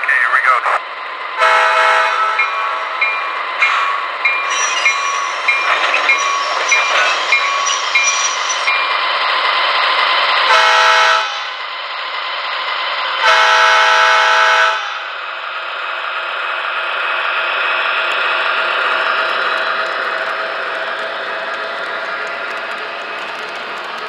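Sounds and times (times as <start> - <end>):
diesel engine running: 0.0 - 24.0
model train horn blast: 1.4 - 2.4, 10.5 - 11.4, 13.2 - 15.0
locomotive bell ringing: 2.0 - 9.2.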